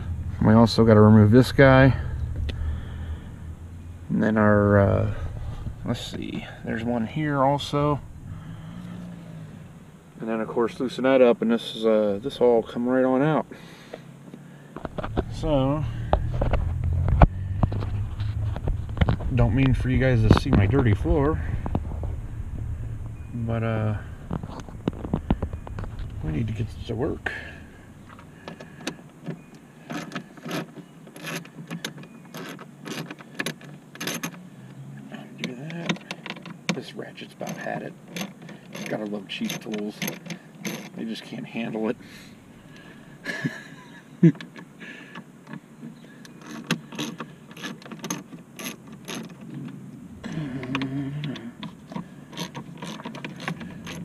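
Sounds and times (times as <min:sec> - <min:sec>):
brief low drone: 0:00.0 - 0:06.7, 0:07.6 - 0:09.9, 0:15.0 - 0:28.3.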